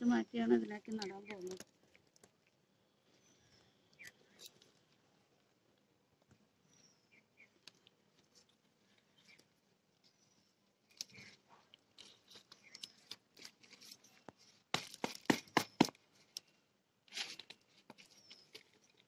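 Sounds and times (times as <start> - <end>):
soil and stems rustling: 0.0 - 19.0.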